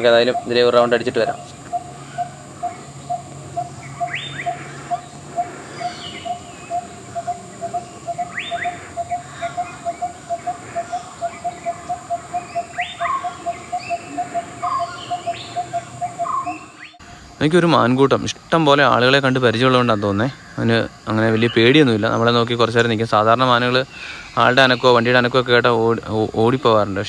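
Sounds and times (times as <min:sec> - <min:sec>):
bird chirps: 0:00.0 - 0:17.0, 0:18.9 - 0:25.5
bird rising whistle: 0:01.7 - 0:17.0.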